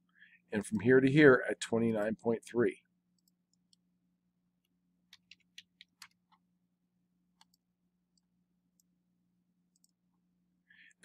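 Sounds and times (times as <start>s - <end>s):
computer mouse clicks: 5.1s - 6.4s, 7.4s - 8.9s, 9.7s - 10.0s.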